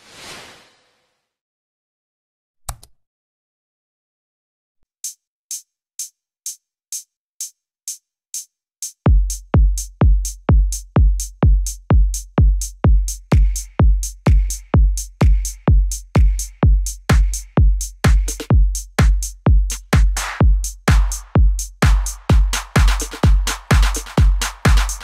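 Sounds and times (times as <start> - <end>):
hi-hat ticks: 5.0 - 25.0
heavy kick drum: 9.1 - 25.0
electronic music: 20.2 - 25.0.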